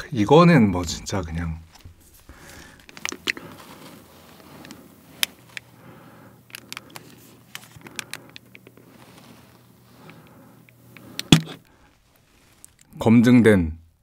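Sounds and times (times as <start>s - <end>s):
squeeze bottle clicks and pops: 11.2s - 11.6s.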